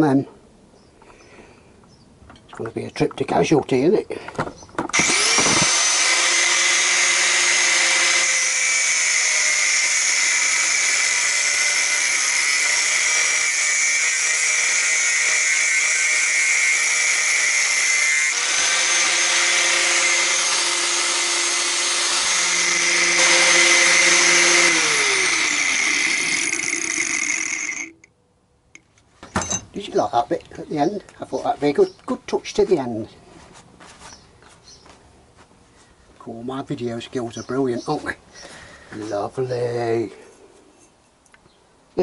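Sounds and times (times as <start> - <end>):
angle grinder cutting metal: 4.9 - 28.1.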